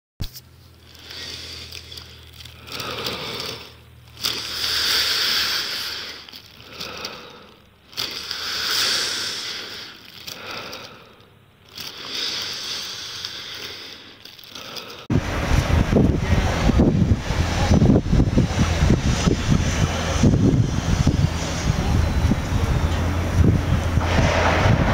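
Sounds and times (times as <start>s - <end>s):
plastic bag crinkling: 0.3s - 15.1s
heavy breathing in plastic bag: 0.7s - 15.1s.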